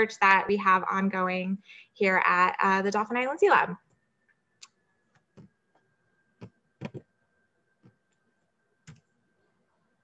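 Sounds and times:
computer mouse clicks: 0:08.8 - 0:09.1.

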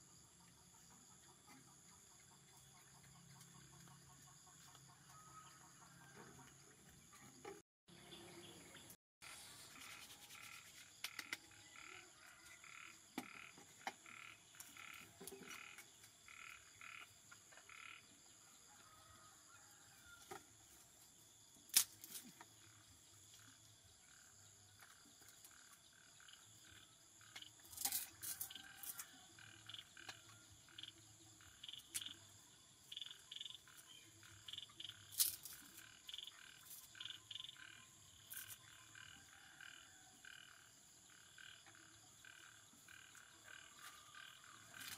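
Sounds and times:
frogs croaking: 0:10.4 - 0:18.2, 0:25.2 - 0:27.9, 0:28.6 - 0:44.9.

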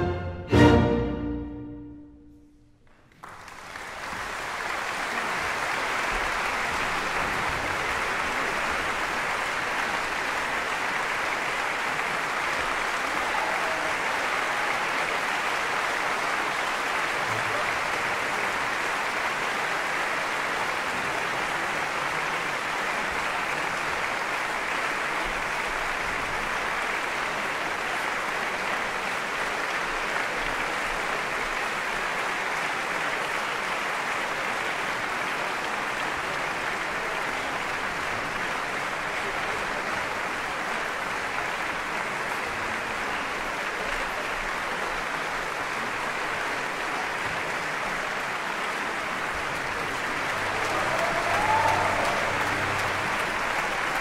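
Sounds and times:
orchestra final chord: 0:00.0 - 0:02.7
audience applauding: 0:02.8 - 0:54.0.

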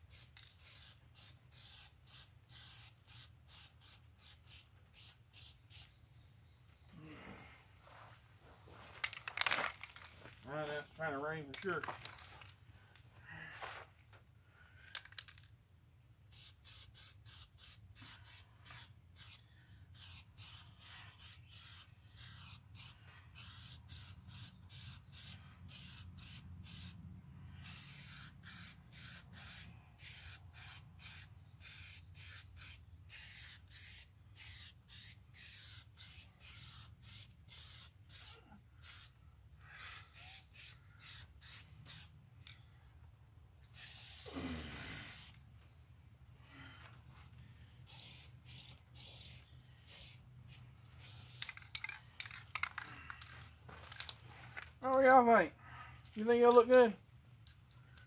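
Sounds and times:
spray can hissing: 0:00.1 - 0:06.0, 0:16.3 - 0:19.4, 0:20.0 - 0:27.0, 0:27.6 - 0:39.1, 0:39.8 - 0:42.1, 0:43.7 - 0:45.4, 0:47.9 - 0:51.6.

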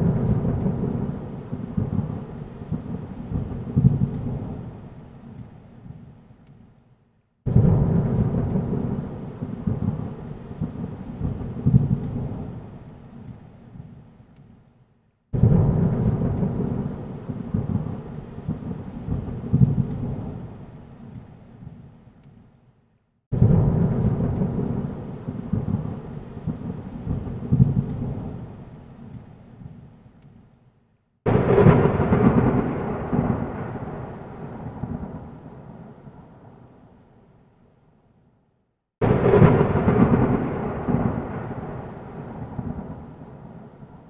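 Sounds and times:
thunder rumbling: 0:00.0 - 0:05.0, 0:07.5 - 0:12.8, 0:15.4 - 0:20.8, 0:23.3 - 0:28.7, 0:31.3 - 0:36.8, 0:39.0 - 0:44.0
rain: 0:00.0 - 0:37.8, 0:39.0 - 0:44.0.

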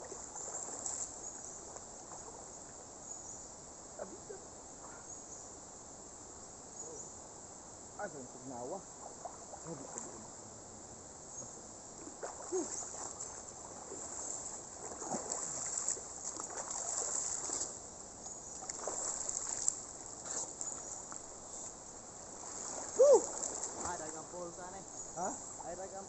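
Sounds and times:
river water splashing: 0:00.0 - 0:03.0, 0:08.3 - 0:26.0.

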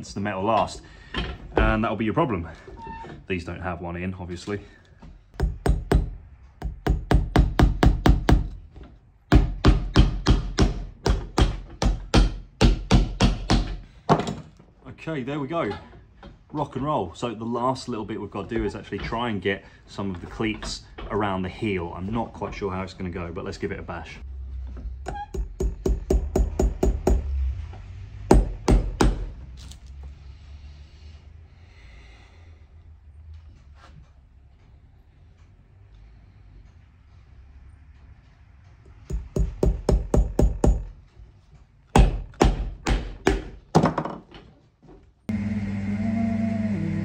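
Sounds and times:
hammer driving nails on metal: 0:05.4 - 0:08.6, 0:09.3 - 0:14.4, 0:25.0 - 0:27.3, 0:28.3 - 0:29.3, 0:39.0 - 0:40.9, 0:41.9 - 0:44.1
sharp knocks: 0:09.3 - 0:14.5, 0:28.2 - 0:29.3.

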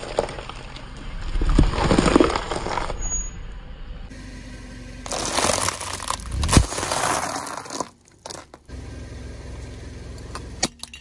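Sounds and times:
low steady rumble: 0:02.9 - 0:11.0
plastic packaging crinkling: 0:05.1 - 0:08.5
pasta crunching and cracking: 0:05.1 - 0:08.6.

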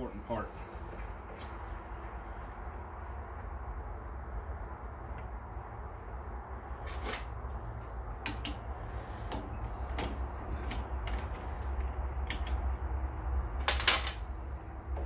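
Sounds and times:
low steady hum: 0:00.0 - 0:15.0
metal tools clinking: 0:10.0 - 0:12.9, 0:13.6 - 0:14.2.

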